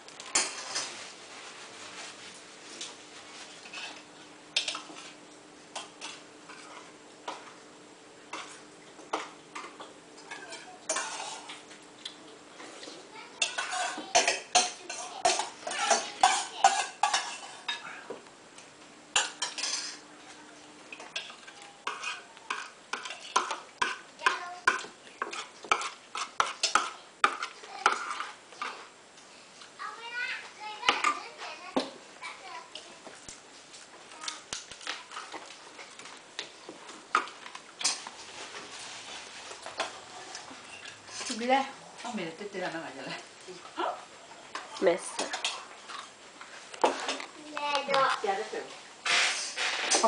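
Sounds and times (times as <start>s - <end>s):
cutlery clinking on dishes: 8.3s - 11.6s, 13.4s - 17.9s, 19.2s - 20.0s.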